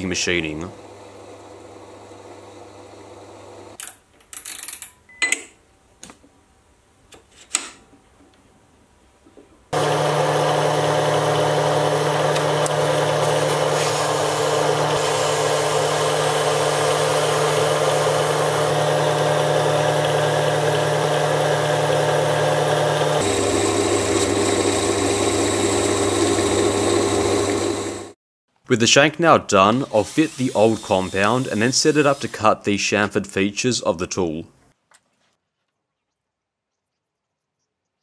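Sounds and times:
metal lathe running with whine: 9.8 - 28.2.

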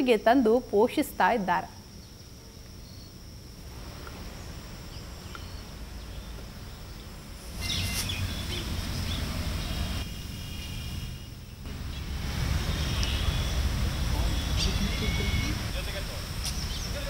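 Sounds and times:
insect buzz: 0.0 - 17.0
low wind rumble: 3.1 - 17.0
bird chirps: 4.9 - 10.8, 12.7 - 15.7.

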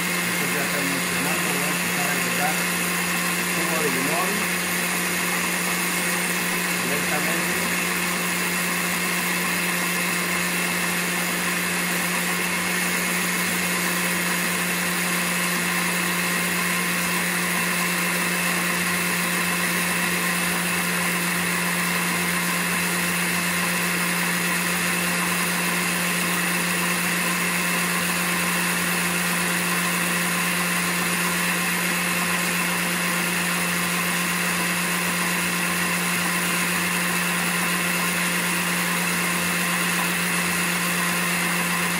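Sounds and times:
blender motor running: 0.0 - 41.9.

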